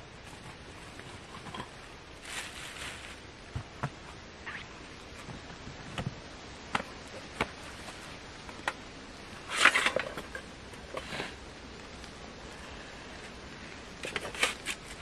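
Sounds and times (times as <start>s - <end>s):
short rustle: 2.2s - 3.3s.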